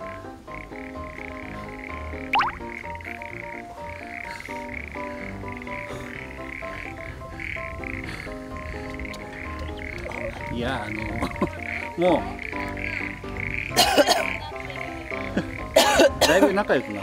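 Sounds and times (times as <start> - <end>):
frogs calling: 0.0 - 17.0.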